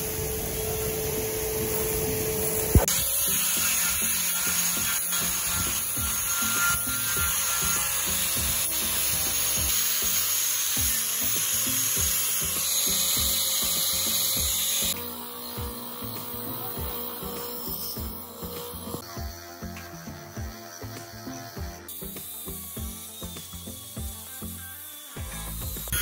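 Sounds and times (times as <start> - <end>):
angle grinder grinding metal: 1.0 - 26.0.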